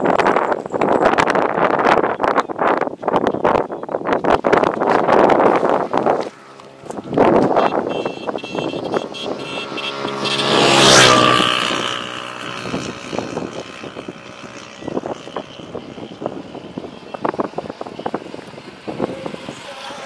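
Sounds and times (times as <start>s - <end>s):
vehicle passing by: 5.0s - 20.0s.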